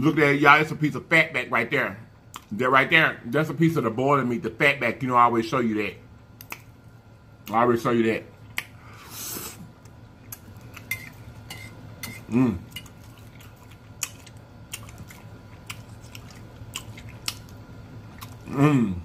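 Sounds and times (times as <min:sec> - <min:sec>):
mouth chewing and lip-smacking: 0:06.4 - 0:06.8, 0:08.4 - 0:11.1, 0:12.0 - 0:18.6
person humming mm: 0:12.3 - 0:12.7, 0:18.4 - 0:19.0.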